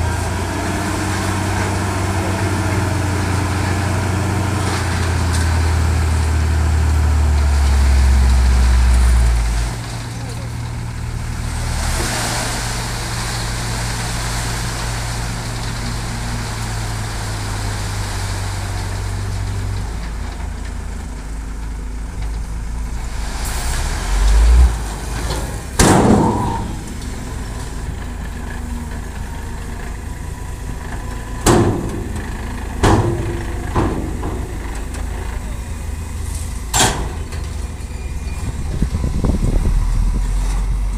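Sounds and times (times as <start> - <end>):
diesel truck engine running: 0.0 - 40.9
gravel unloading: 0.0 - 40.9
low engine hum: 0.0 - 40.9.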